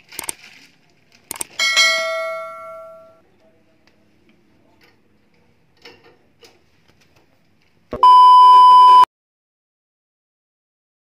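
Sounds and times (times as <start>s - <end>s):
test-pattern beep: 8.0s - 9.1s.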